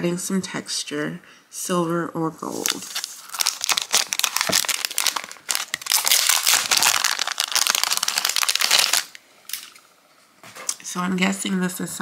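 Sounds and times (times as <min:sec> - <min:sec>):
plastic bag crinkling: 0:02.5 - 0:09.8.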